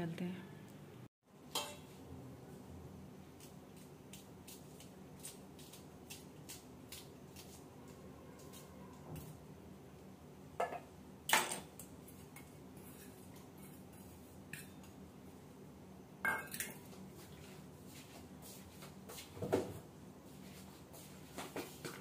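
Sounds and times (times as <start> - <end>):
dishes and utensils clinking: 1.5 - 1.9, 16.3 - 16.8.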